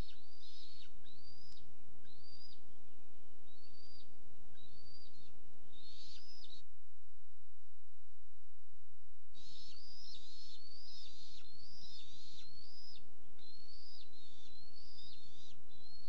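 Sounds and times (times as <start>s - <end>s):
bird whistling call: 0.0s - 2.6s, 3.5s - 6.6s, 9.4s - 16.0s
steady low hum: 0.0s - 16.0s.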